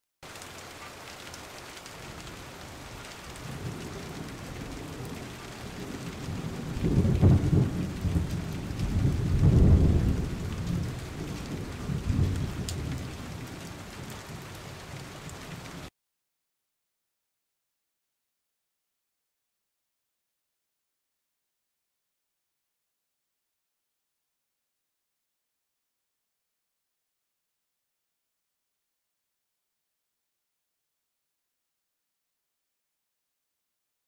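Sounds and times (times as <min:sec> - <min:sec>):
steady rain: 0:00.2 - 0:15.9
rolling thunder: 0:03.3 - 0:14.4.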